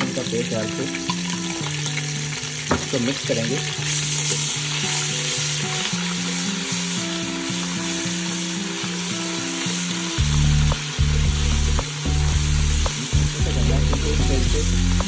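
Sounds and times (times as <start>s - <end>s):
background music: 0.0s - 15.0s
onions sizzling in hot oil: 0.0s - 15.0s
deep bass: 10.2s - 15.0s.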